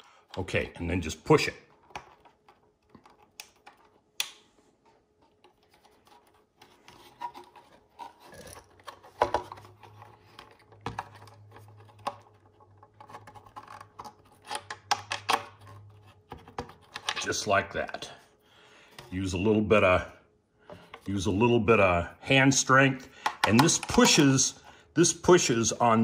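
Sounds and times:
clicks and scrapes of hand work: 5.1 - 17.3.

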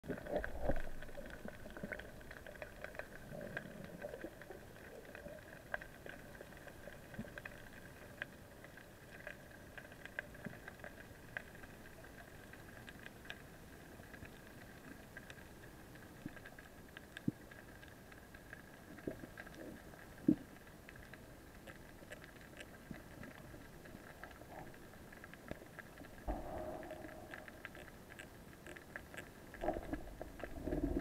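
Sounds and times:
faint underwater clicks and crackles: 0.0 - 31.0
steady underwater hiss: 0.1 - 31.0
knock and rumble: 26.3 - 27.8.

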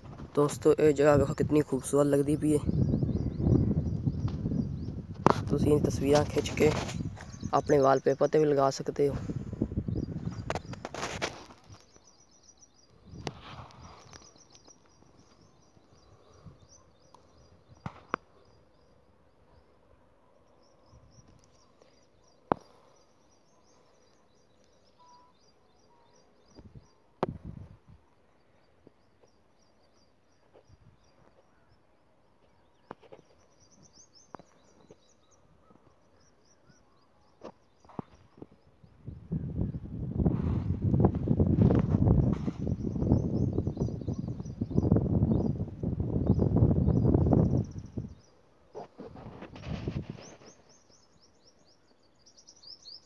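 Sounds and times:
small birds chirping: 0.0 - 53.0
rustle: 10.2 - 12.2, 13.2 - 15.6, 47.8 - 53.0.

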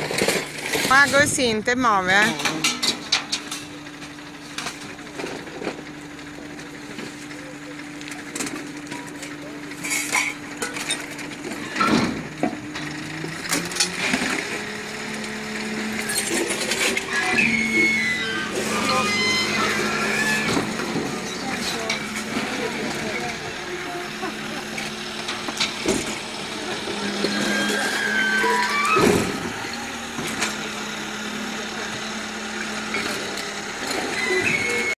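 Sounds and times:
vehicle engine idling: 0.0 - 34.9
street voices: 0.0 - 35.0.

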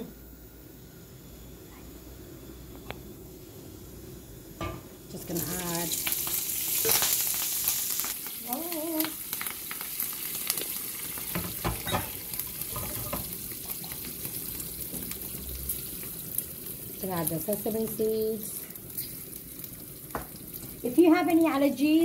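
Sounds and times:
chilies sizzling in hot oil: 0.3 - 22.0
oil popping and crackling: 5.1 - 22.0.

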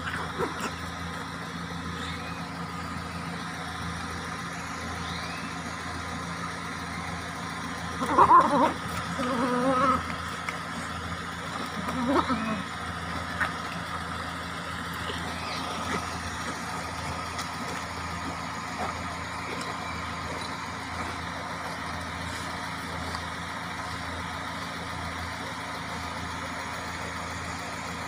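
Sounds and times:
engine idling: 0.0 - 28.0.

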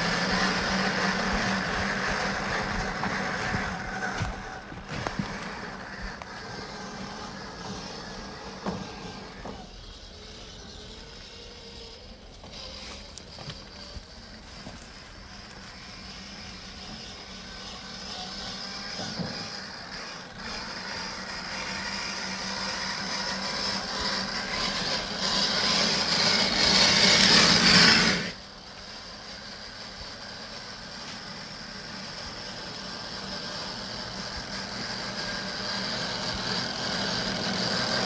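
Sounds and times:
toy car motor whining: 0.0 - 38.0.

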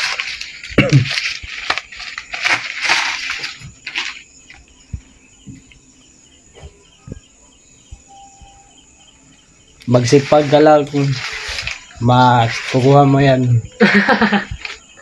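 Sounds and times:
paper banknotes rustling: 0.0 - 4.6, 9.9 - 15.0
faint insect chirping: 0.0 - 15.0.

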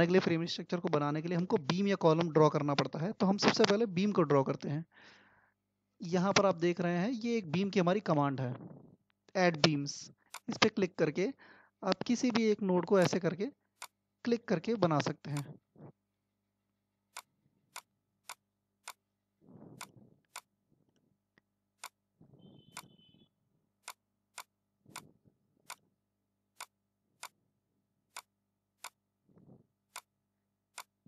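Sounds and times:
computer mouse clicking: 9.6 - 10.8, 13.0 - 13.2, 23.8 - 25.9, 26.6 - 27.4, 29.9 - 30.1, 30.7 - 31.0.

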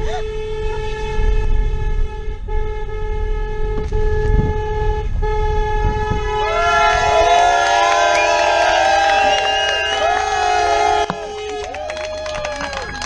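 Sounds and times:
car horn blasts: 0.0 - 13.0
crowd cheering and calling: 6.2 - 13.0.

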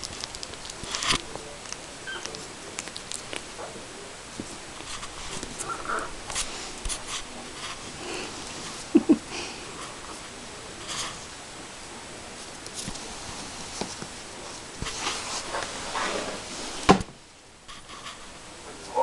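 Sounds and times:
puppies squeaking: 2.0 - 2.4.

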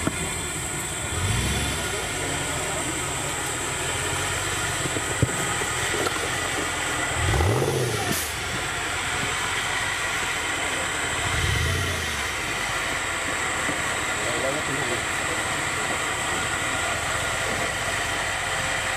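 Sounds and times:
steady noisy background: 0.0 - 18.9
engine revving: 1.0 - 3.2, 6.9 - 13.1.

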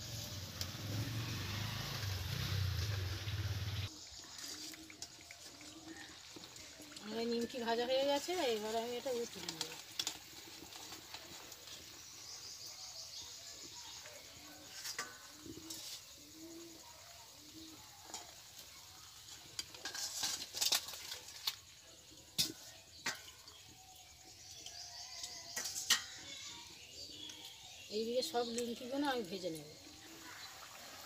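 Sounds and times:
food sizzling in hot oil: 0.0 - 31.0
metal spoon scraping a wok: 14.6 - 16.4, 17.6 - 21.6, 25.1 - 26.4.

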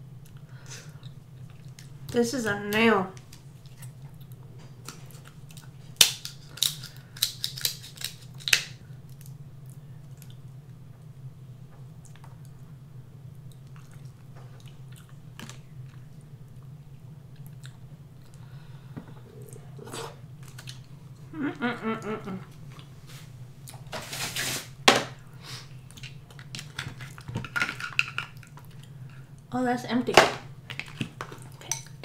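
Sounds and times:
low background hum: 0.0 - 32.0
chewing and wet mouth sounds: 0.2 - 2.1, 3.2 - 10.8, 12.0 - 12.7, 13.3 - 18.5, 19.3 - 21.2, 27.9 - 29.5
crab shell cracking: 5.6 - 9.4
person humming: 21.3 - 22.5.

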